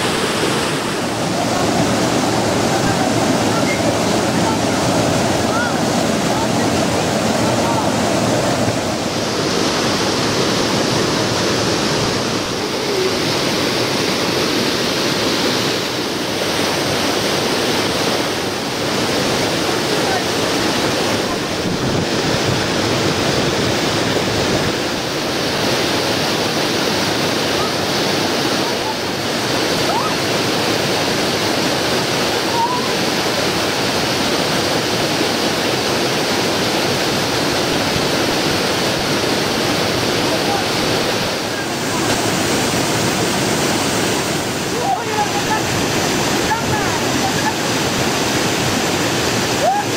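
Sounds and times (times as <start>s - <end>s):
river water rushing over boulders: 0.0s - 49.9s.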